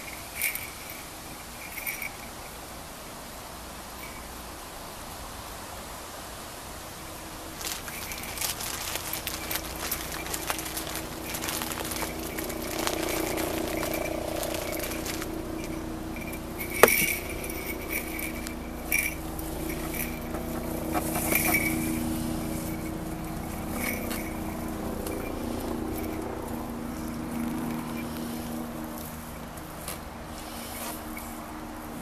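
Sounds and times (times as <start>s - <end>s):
small bells jingling: 0.0s - 2.9s, 3.8s - 4.6s, 7.4s - 32.0s
steady low hum: 6.8s - 32.0s.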